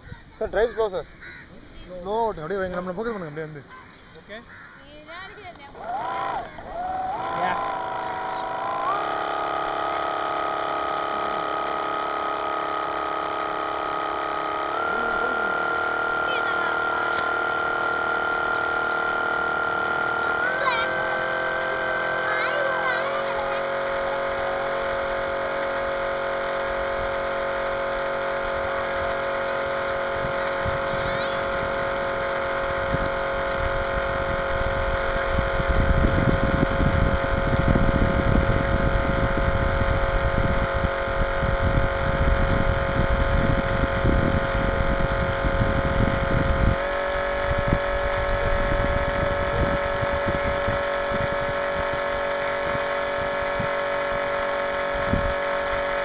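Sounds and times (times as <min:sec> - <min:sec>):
model boat motor whining: 0:04.3 - 0:56.0
wind buffeting microphone: 0:28.4 - 0:54.2.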